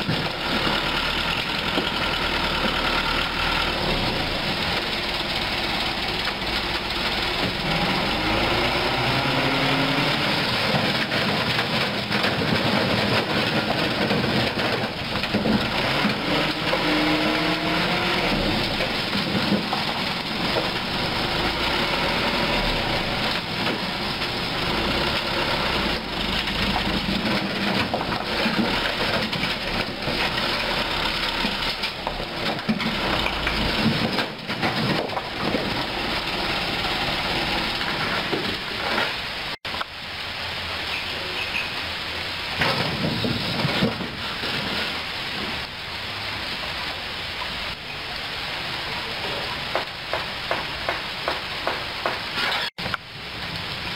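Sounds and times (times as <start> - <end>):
truck engine running: 0.0 - 39.6
rocks tumbling and clattering: 0.0 - 40.0, 42.5 - 45.7.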